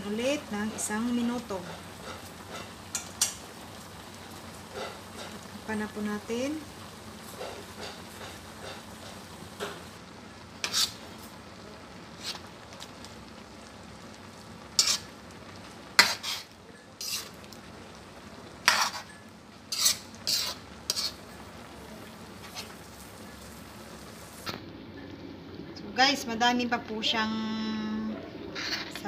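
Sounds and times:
sauce sizzling: 0.0 - 29.0
metal spoon scraping wok: 10.6 - 11.0, 12.2 - 12.5, 14.8 - 15.1, 16.0 - 17.4, 18.6 - 21.4, 22.4 - 22.8, 28.5 - 29.0.

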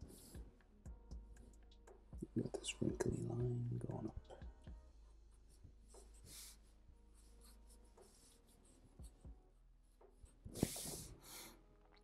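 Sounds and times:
marker scratching on paper: 5.9 - 9.2, 10.5 - 11.1.

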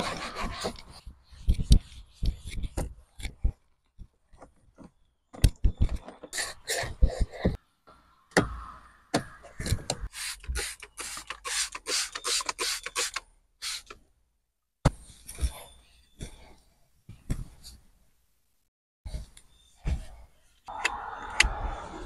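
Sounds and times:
trigger spray bottle squirting: 10.2 - 13.9.

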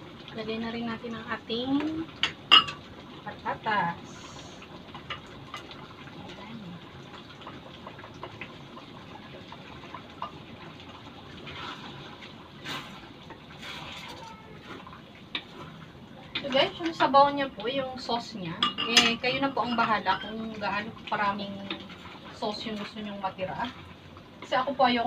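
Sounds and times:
stew bubbling and hissing: 2.9 - 17.4, 19.3 - 24.6.

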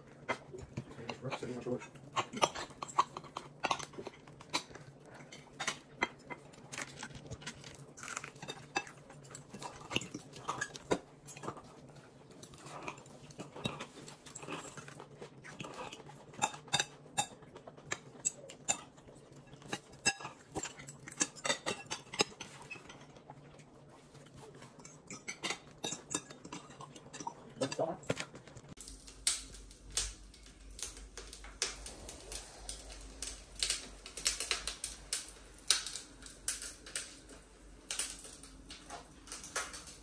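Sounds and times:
chewing: 0.0 - 40.0
steady low hum: 23.2 - 40.0.

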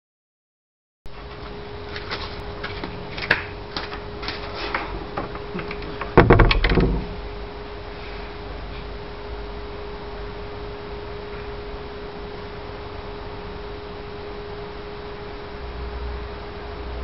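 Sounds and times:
loudspeaker steady tone: 9.0 - 17.0.

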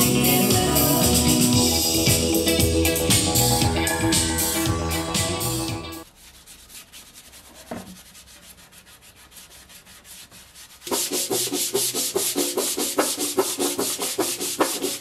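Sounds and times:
sanding steel panel: 6.0 - 15.0.

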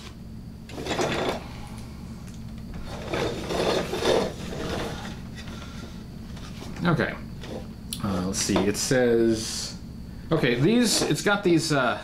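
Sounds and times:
plastic parts rubbing and knocking: 2.8 - 5.6.

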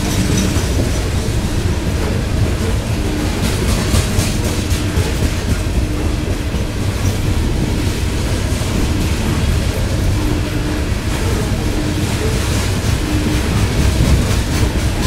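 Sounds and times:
clickety-clack wheel clicks: 0.0 - 15.0
train wheels rumbling on rail: 0.0 - 15.0.

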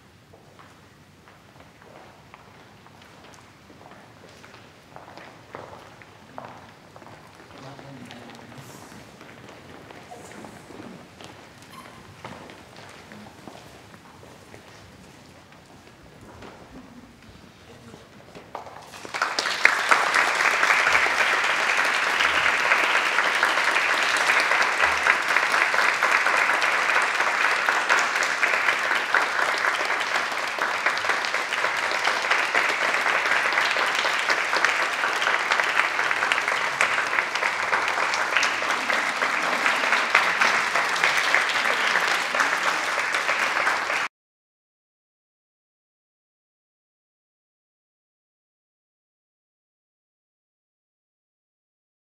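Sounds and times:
small group clapping: 18.5 - 44.1.

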